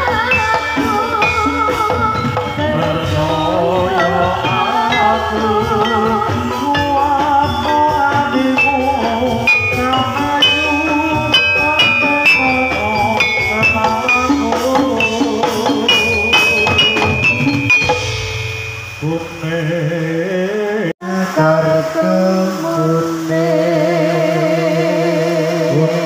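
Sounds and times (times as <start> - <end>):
steady drumming: 0.0 - 20.2
struck metallophone notes: 0.0 - 20.2
wavering vocal melody: 0.0 - 26.0.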